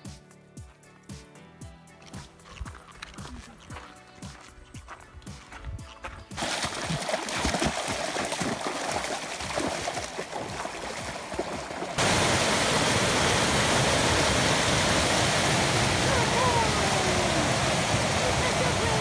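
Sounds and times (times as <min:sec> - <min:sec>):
shallow river flowing: 0:06.4 - 0:19.0
waterfall pouring over rocks: 0:06.4 - 0:19.0.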